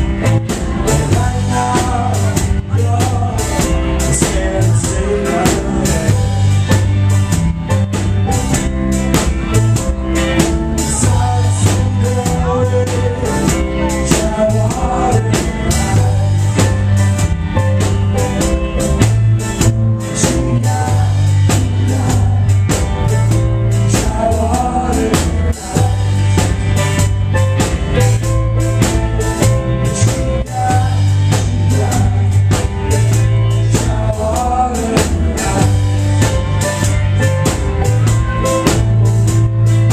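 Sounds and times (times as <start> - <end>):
person singing: 0.0 - 7.3, 9.5 - 27.0, 29.4 - 39.2
live rock band playing: 0.0 - 39.9.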